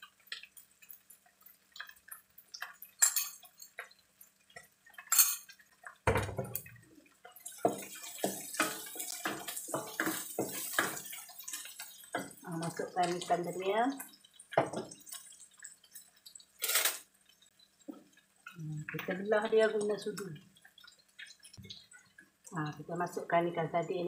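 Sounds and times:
utensils clinking: 3.0 - 3.8, 5.0 - 5.5, 16.6 - 17.0
paste sizzling in a wok: 7.1 - 18.5
wooden spoon scraping a wok: 7.6 - 11.8.

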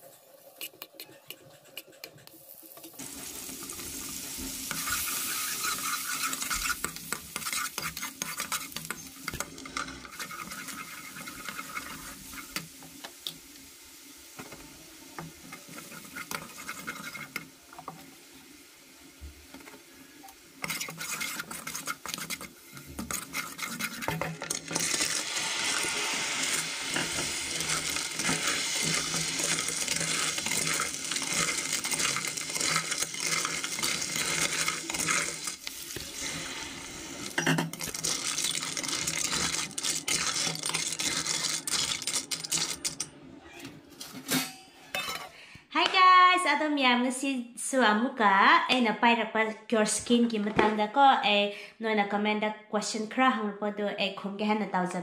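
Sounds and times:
paste sizzling in a pan: 0.0 - 43.0
clams stirred in a pan: 2.4 - 18.6, 19.5 - 43.0
spatula scraping a pan: 4.6 - 12.7, 15.4 - 18.0, 20.6 - 36.5, 37.2 - 43.0.

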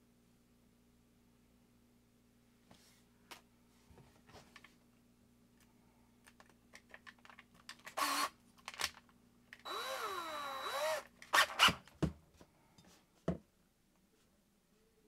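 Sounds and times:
drill bit and chuck clicking: 7.8 - 9.0, 9.6 - 11.7
drill motor running: 8.0 - 8.3, 9.7 - 11.7.

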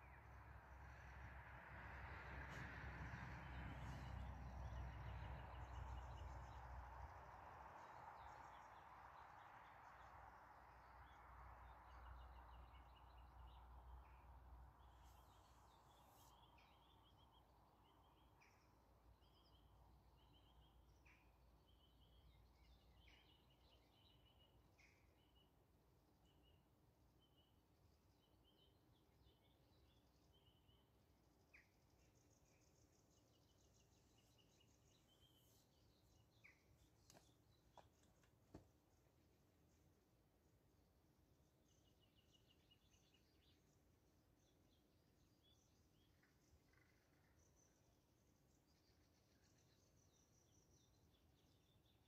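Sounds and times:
small birds chirping: 26.2 - 39.9.

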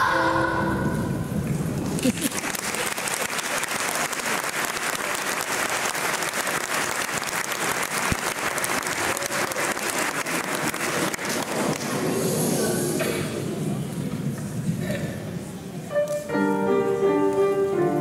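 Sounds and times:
audience applause: 1.8 - 12.2.

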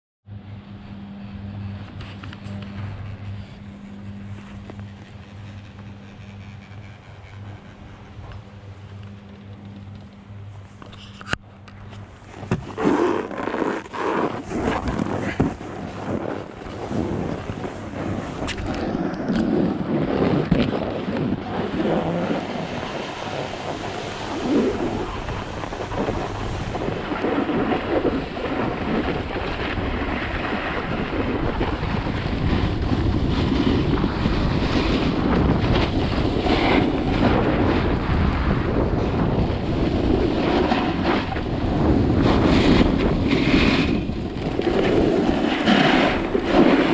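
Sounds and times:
wind buffeting microphone: 1.0 - 46.9
snowboard scraping over snow: 2.0 - 5.2, 10.6 - 46.9.

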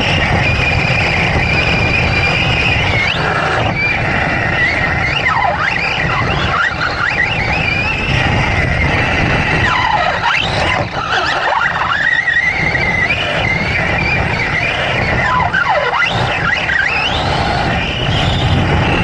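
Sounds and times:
rc truck motor whine: 0.0 - 19.0
tyres rumbling on dirt: 0.0 - 19.0.

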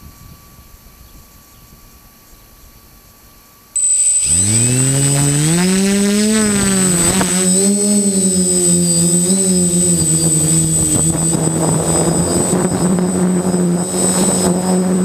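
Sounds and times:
quadcopter motors whining: 3.8 - 15.0.

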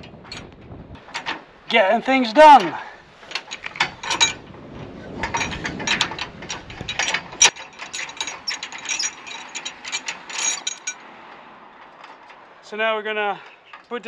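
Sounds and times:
metal tools clicking: 5.2 - 11.0.

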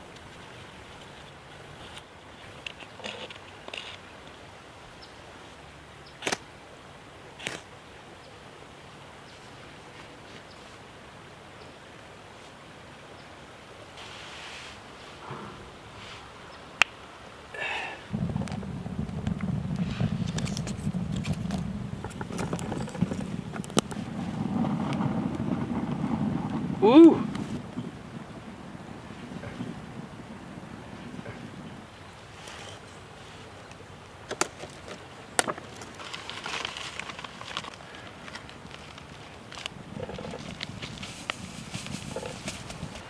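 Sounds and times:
dry sticks crackling in fire: 17.6 - 31.6, 33.6 - 43.0
steady low rumble: 18.1 - 32.3.

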